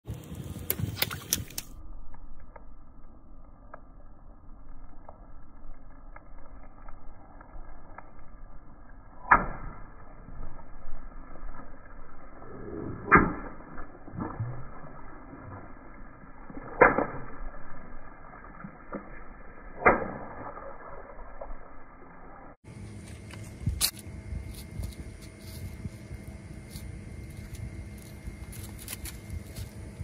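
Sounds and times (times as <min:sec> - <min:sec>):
water balloons popping: 0:09.2 - 0:09.9, 0:13.0 - 0:21.1.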